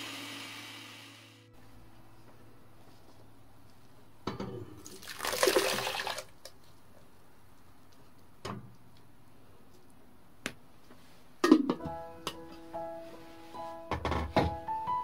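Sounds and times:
puree pouring into metal pot: 4.8s - 6.4s.

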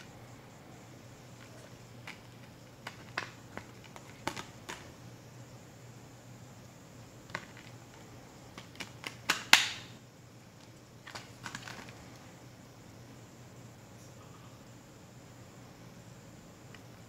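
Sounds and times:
plastic case clicking and snapping: 1.4s - 4.9s, 7.3s - 9.8s, 11.1s - 11.9s.

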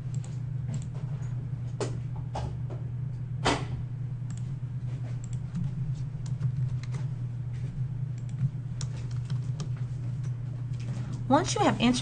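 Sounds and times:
steady low hum: 0.0s - 12.0s
keyboard typing: 8.2s - 9.8s.

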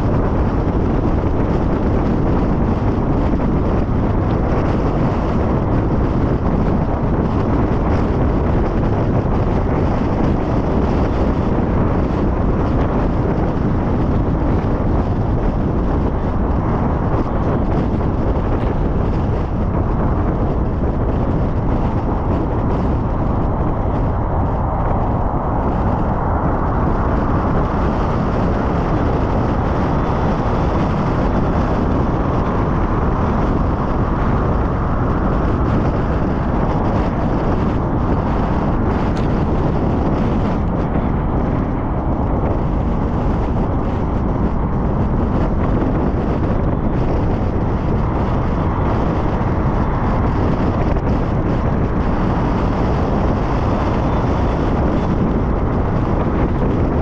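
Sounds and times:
car road and wind noise: 0.0s - 57.0s.

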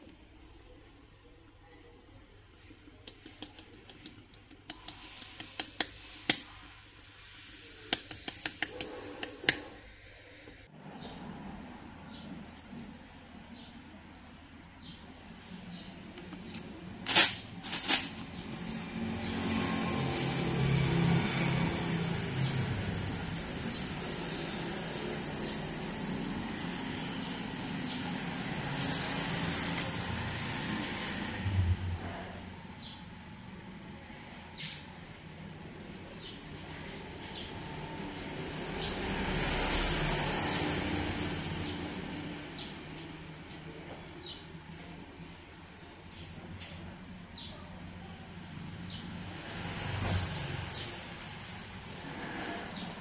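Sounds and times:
sharp clicks and taps: 3.0s - 6.5s, 7.9s - 9.7s
background traffic rumble: 3.7s - 53.0s.

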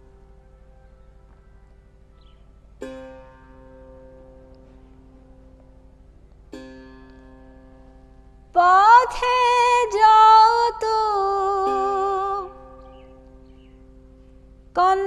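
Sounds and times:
plucked single string: 2.0s - 15.0s
woman singing: 8.5s - 13.2s, 14.8s - 15.0s.

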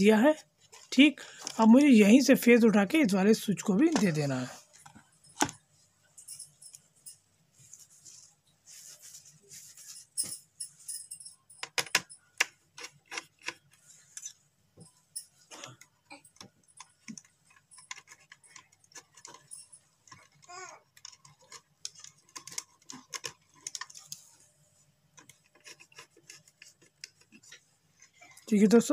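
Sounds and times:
scraping rustle: 7.5s - 10.2s.

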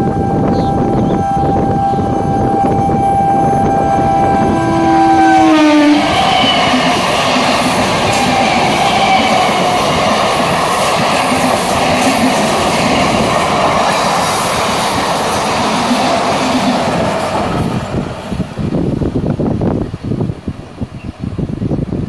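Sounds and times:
train wheels clattering on rails: 6.0s - 19.2s.

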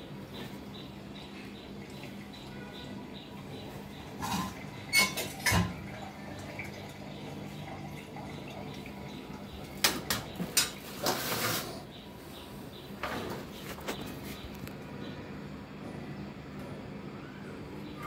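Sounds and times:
metal utensils clattering: 4.2s - 5.9s.

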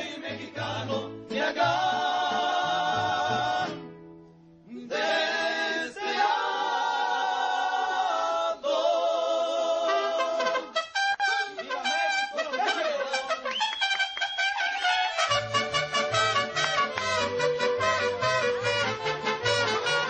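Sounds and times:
men singing in harmony: 0.0s - 3.8s, 4.7s - 10.7s
mariachi band playing: 0.0s - 6.2s, 9.8s - 20.0s
trumpets: 9.8s - 20.0s.

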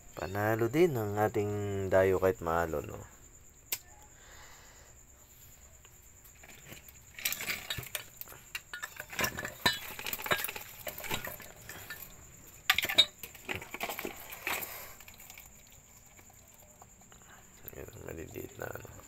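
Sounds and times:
metal basin clinking: 7.1s - 16.3s.

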